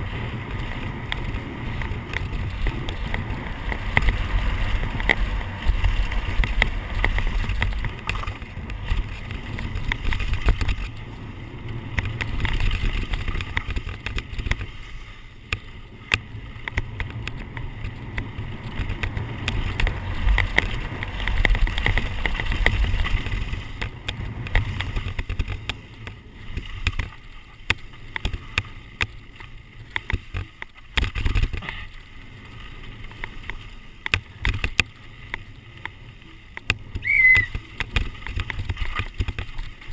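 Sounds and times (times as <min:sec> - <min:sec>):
tyres on loose gravel: 0:00.0 - 0:39.9
bike clattering over rocks: 0:01.1 - 0:11.1, 0:11.9 - 0:14.8.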